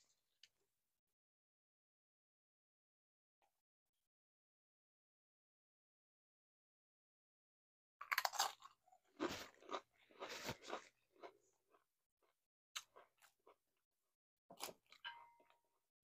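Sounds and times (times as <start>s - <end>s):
chewing crunchy chips: 8.0s - 13.6s.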